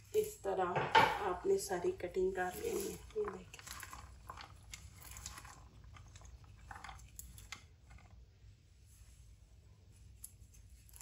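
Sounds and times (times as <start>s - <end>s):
okra pieces rustling in basket: 2.2s - 8.2s.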